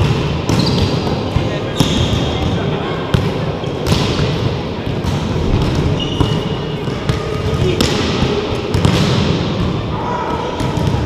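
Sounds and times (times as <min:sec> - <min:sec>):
din of players on court: 0:00.0 - 0:11.0
shoe squeak: 0:00.6 - 0:01.0, 0:01.8 - 0:02.4, 0:05.9 - 0:06.8.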